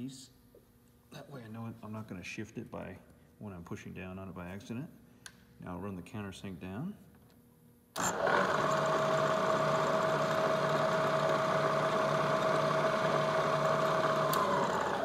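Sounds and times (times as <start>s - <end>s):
drill press motor humming: 8.0s - 15.0s.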